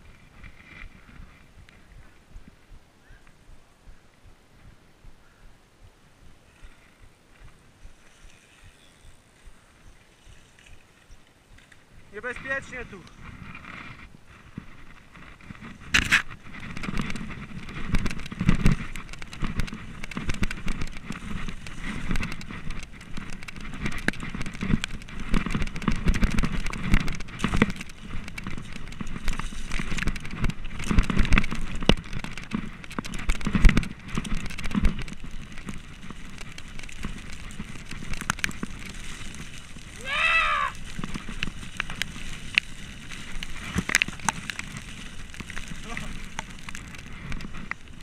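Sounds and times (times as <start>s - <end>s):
tyres crackling on loose gravel: 0.0s - 4.2s, 6.2s - 48.0s
bike thudding over bumps: 0.0s - 48.0s
bike rattling clicks: 14.9s - 48.0s.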